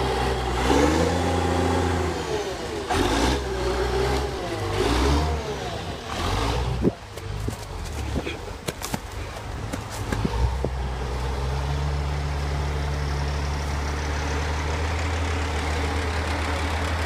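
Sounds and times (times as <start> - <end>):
diesel engine revving: 0.0 - 17.0.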